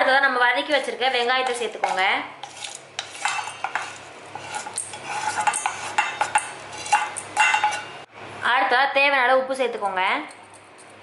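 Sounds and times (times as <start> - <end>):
utensil scraping a frying pan: 0.8 - 8.1
clinks against steel bowl: 4.6 - 7.9.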